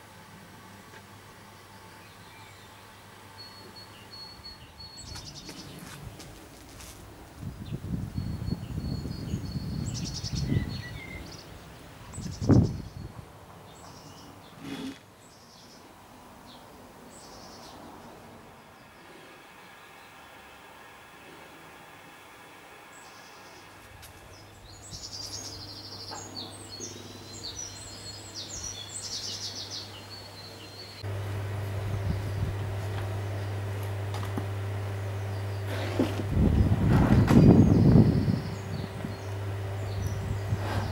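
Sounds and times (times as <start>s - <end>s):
small birds chirping: 1.5s - 20.3s, 22.9s - 40.9s
steady low hum: 30.9s - 40.9s.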